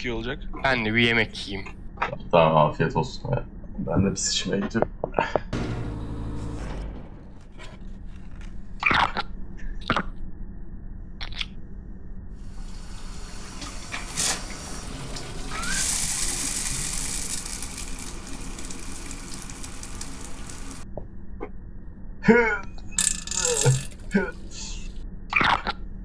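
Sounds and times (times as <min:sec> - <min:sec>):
short sharp sounds: 0:05.6 - 0:08.8
shower water spraying: 0:12.4 - 0:20.8.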